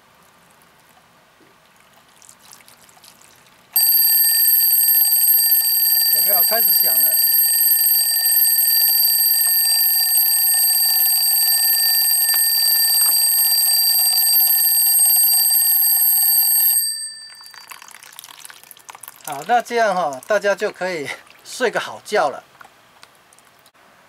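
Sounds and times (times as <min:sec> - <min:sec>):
alarm clock ringing: 0:03.8 - 0:17.8.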